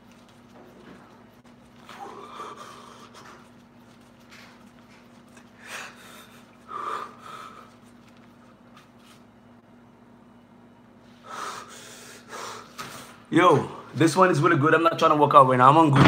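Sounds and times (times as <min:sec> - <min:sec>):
faint steady hum: 0:00.0 - 0:15.9
man breathing hard: 0:01.9 - 0:03.6, 0:05.4 - 0:07.9, 0:11.2 - 0:13.2.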